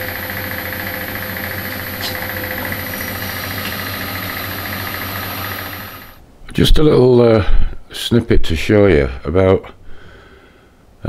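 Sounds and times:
drilling machine motor hum: 0.0s - 6.2s.

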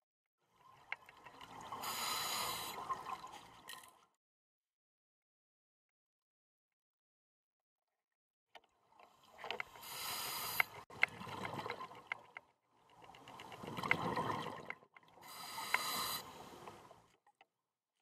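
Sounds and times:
regulator hissing inhalation: 1.8s - 2.8s, 9.8s - 10.8s, 15.2s - 16.5s
small clicks: 8.6s - 17.5s.

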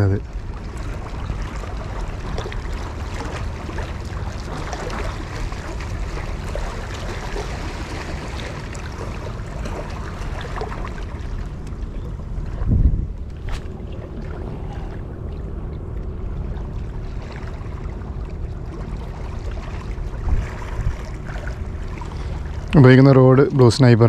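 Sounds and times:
small waves washing among rocks: 12.6s - 15.0s.

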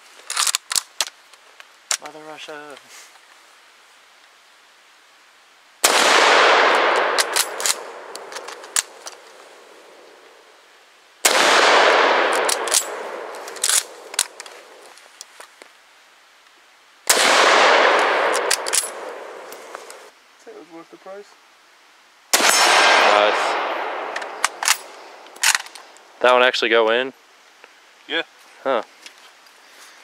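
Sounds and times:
rifle shots: 5.8s - 9.0s, 11.2s - 14.4s, 17.1s - 19.5s, 22.3s - 25.7s
rifle bolt clacks: 6.9s - 9.2s, 12.3s - 14.6s, 18.0s - 19.0s, 24.1s - 25.8s.

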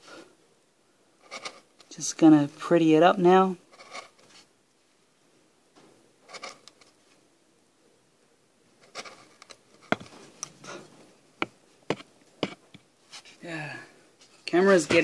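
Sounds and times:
chisel scraping wood: 11.9s - 12.8s.

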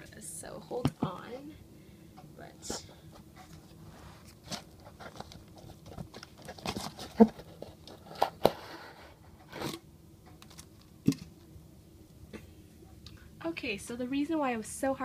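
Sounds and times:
cardboard and styrofoam scraping: 3.5s - 9.8s.

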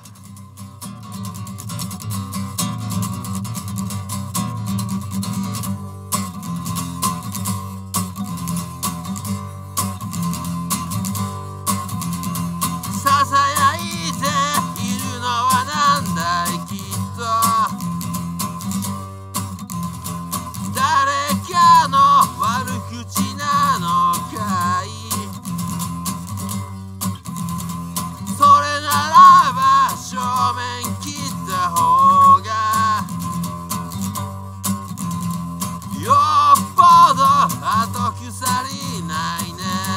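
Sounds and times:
acoustic guitar strumming: 0.0s - 39.9s
man singing: 12.8s - 18.0s, 20.6s - 25.7s, 28.2s - 33.4s, 35.9s - 39.9s.

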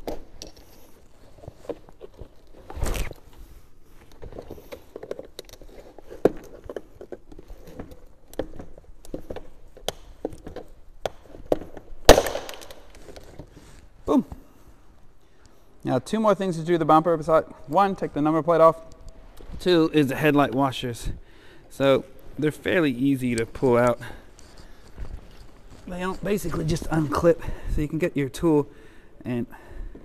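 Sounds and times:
loud sharp plastic snap: 12.1s - 13.0s.

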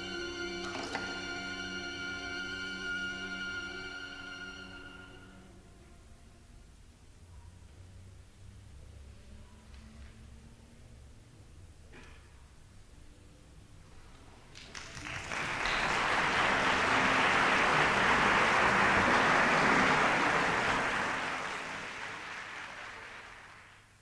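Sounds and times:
audience applauding: 14.5s - 24.0s.

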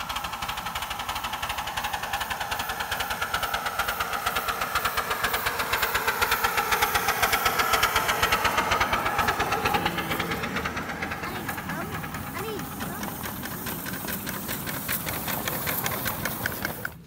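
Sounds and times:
miniature steam locomotive chuffing: 0.0s - 17.0s.

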